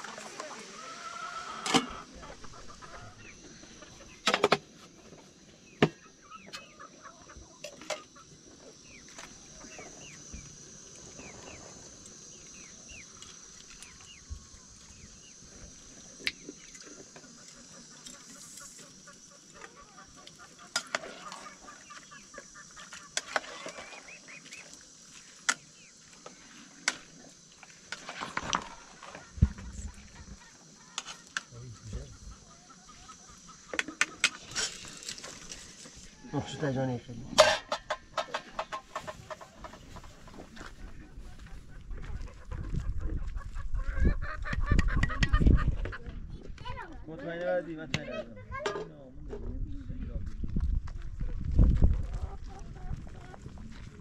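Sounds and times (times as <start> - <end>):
chickens clucking: 0.0 - 5.0, 5.8 - 27.5, 28.1 - 48.8, 51.7 - 54.0
metal pot and lid clinking: 37.4 - 38.5.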